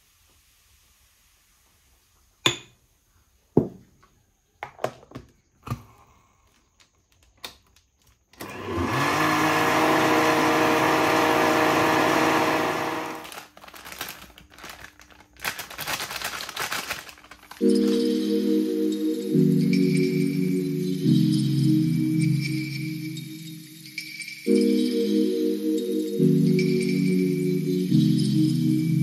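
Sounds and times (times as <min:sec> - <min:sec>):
blender motor running: 0:08.4 - 0:13.4.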